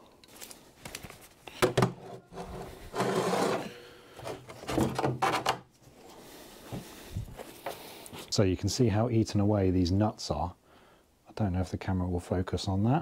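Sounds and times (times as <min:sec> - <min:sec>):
tool scraping and rasping: 0:02.0 - 0:05.5.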